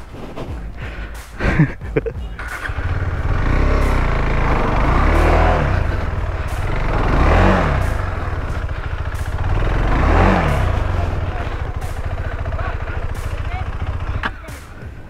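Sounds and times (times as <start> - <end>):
motorcycle engine revving: 0.5 - 15.0.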